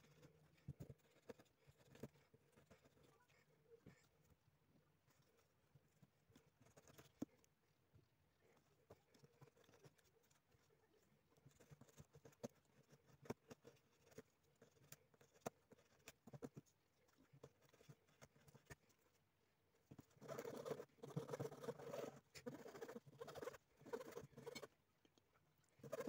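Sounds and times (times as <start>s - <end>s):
file rasping cork: 20.0s - 24.8s, 25.8s - 26.0s.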